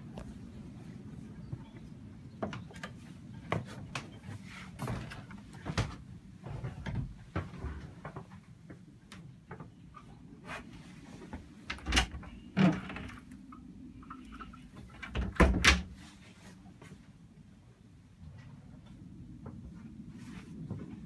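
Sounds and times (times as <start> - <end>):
steady low hum: 0.0 - 21.0
knocks and thumps of climbing: 1.4 - 13.4.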